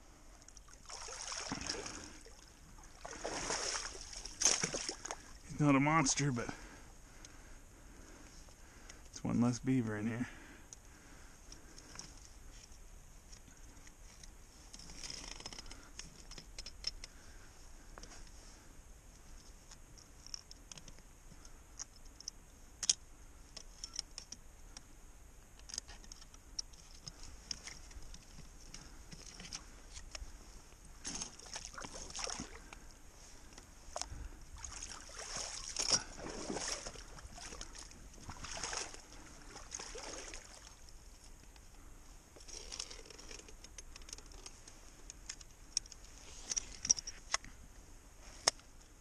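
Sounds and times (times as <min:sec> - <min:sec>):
muddy water sloshing and splashing: 0:00.3 - 0:07.2, 0:31.0 - 0:32.8, 0:33.8 - 0:40.9.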